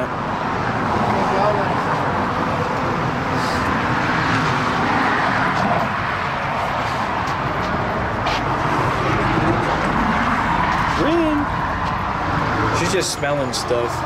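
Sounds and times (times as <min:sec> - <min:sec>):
cars going by: 0:00.0 - 0:14.0.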